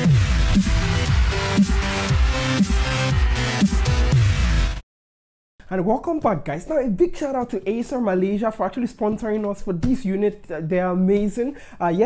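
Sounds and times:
electronic dance music: 0.0 - 4.8.

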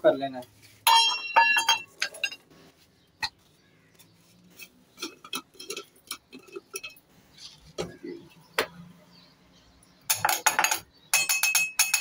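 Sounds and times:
jar knocking against steel bowls: 10.1 - 12.0.

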